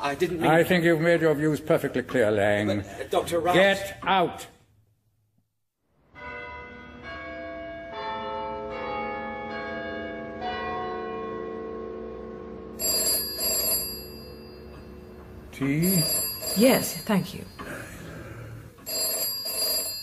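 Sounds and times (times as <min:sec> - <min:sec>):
telephone bell ringing: 0:12.8 - 0:15.2, 0:15.8 - 0:20.0.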